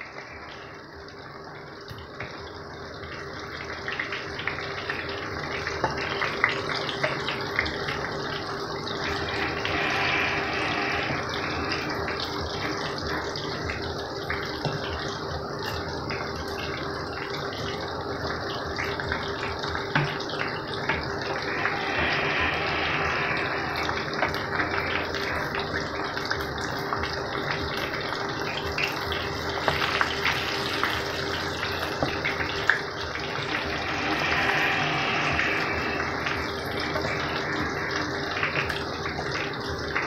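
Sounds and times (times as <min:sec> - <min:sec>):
faint steady hum: 0:00.0 - 0:40.0
food sizzling in hot oil: 0:00.0 - 0:40.0.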